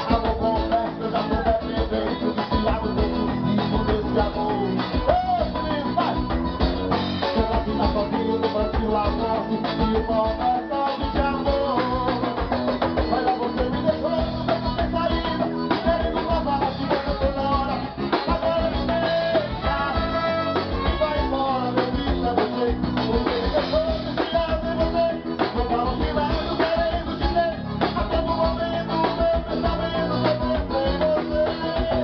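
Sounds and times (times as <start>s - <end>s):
accordion: 0.0s - 32.0s
bass drum beat: 0.0s - 32.0s
guitar: 0.0s - 32.0s
man singing into microphone: 0.0s - 32.0s
brass: 16.6s - 24.2s.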